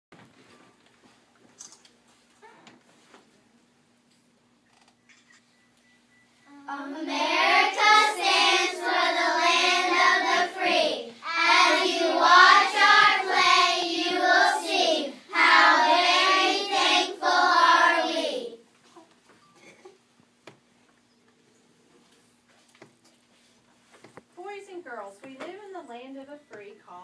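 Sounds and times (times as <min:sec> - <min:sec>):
young children singing: 0:06.5 - 0:18.6.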